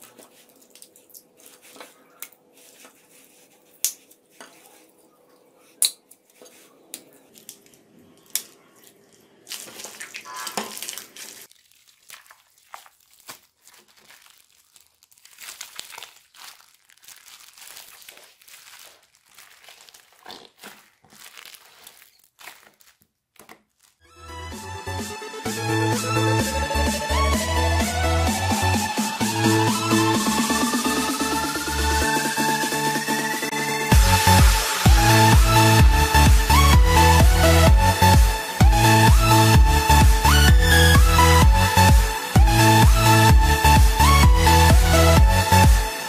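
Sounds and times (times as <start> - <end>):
plastic bags crinkling: 0.0 - 5.0, 6.1 - 24.1
slime squishing: 0.0 - 24.1.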